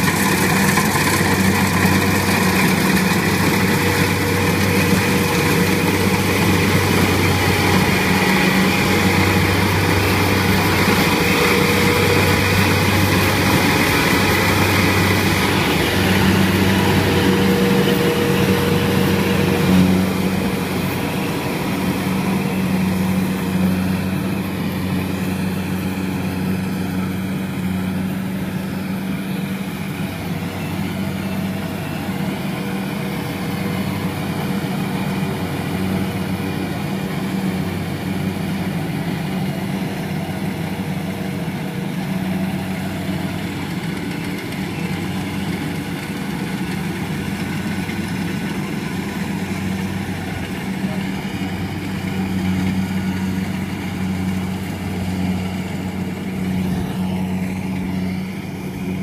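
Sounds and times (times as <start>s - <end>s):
combine harvester diesel engine hum: 0.0s - 59.0s.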